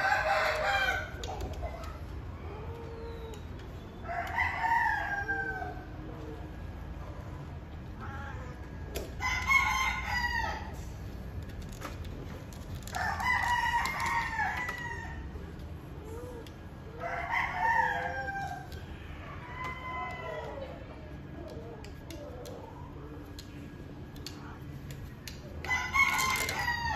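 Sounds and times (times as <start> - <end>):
rooster crowing: 0.0 - 1.2, 4.0 - 6.0, 9.2 - 10.9, 12.9 - 15.4, 17.0 - 20.9, 25.6 - 26.9.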